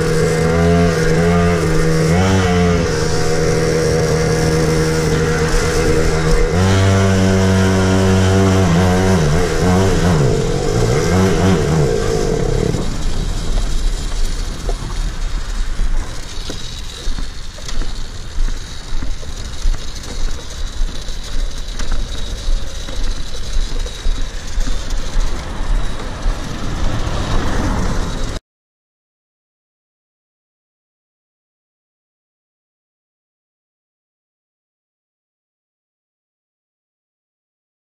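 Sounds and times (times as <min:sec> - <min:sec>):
small two-stroke engine revving: 0:00.0 - 0:28.4.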